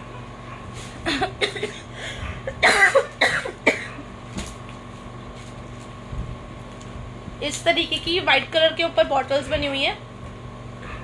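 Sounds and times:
low background hum: 0.0s - 11.0s
woman coughing: 1.0s - 1.9s, 2.5s - 4.0s.

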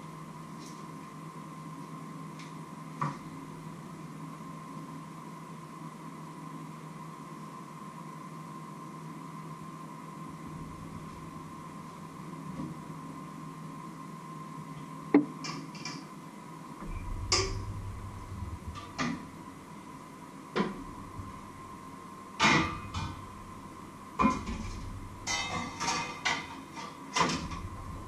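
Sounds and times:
metal pots and pans clanking: 24.2s - 27.7s
pan lids rattling: 25.2s - 27.4s.

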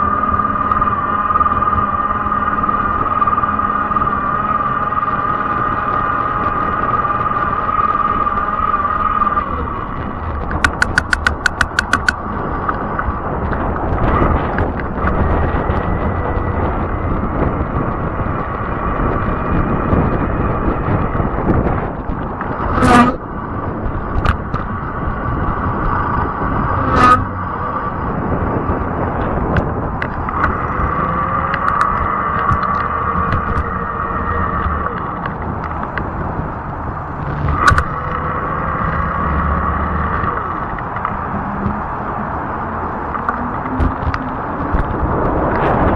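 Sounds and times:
electric motor whine: 0.0s - 45.9s
tires rumbling on pavement: 0.0s - 45.9s
quick run of clicks: 10.4s - 15.2s
sharp knocks: 10.5s - 12.2s.

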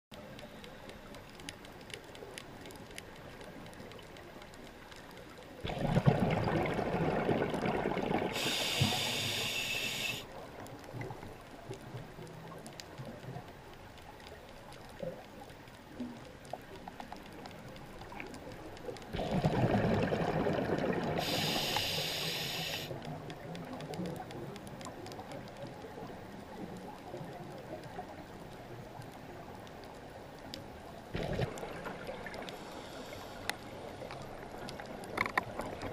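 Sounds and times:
faint underwater crackling: 0.1s - 35.9s
bubbles burbling: 5.6s - 8.4s, 19.1s - 21.3s, 31.1s - 32.5s
diver breathing through regulator: 8.3s - 10.3s, 21.2s - 23.0s, 32.5s - 33.6s.

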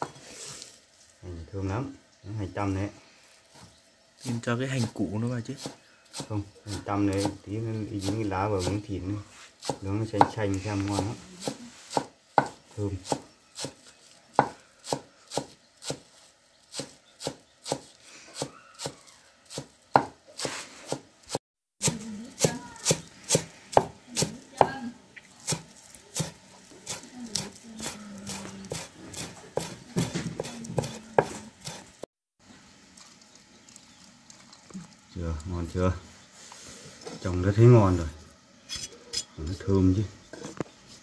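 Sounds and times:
cleaver chopping on wooden block: 11.0s - 13.8s, 16.8s - 20.2s, 26.2s - 31.8s.

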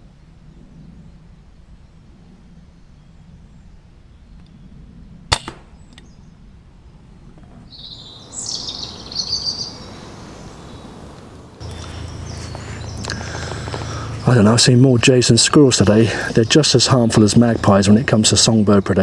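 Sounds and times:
air rifle shot: 5.3s - 6.2s
bird harsh calls: 7.7s - 19.0s.

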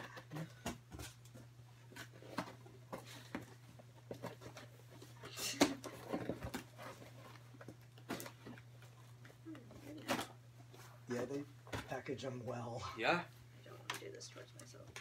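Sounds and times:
cardboard and paper rustling: 0.0s - 12.0s.

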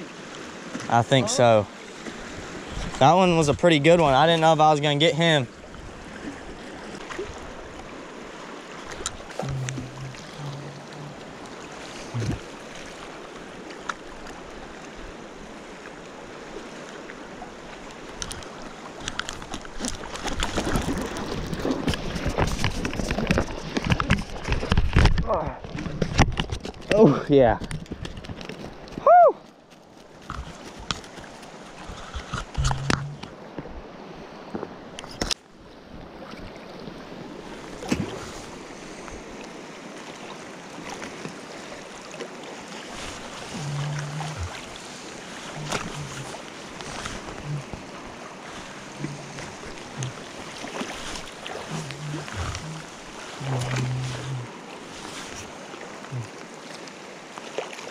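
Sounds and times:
river flowing: 0.0s - 25.1s, 28.3s - 57.9s
wind on microphone: 12.1s - 12.5s.

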